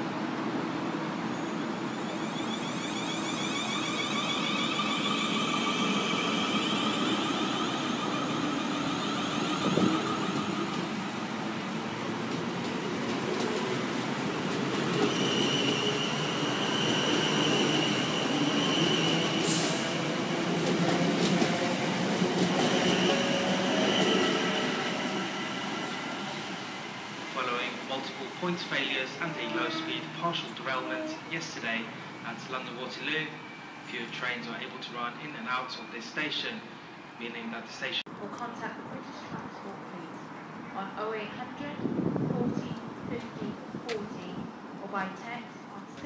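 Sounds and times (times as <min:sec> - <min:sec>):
high wheel squeal: 0:01.3 - 0:10.8.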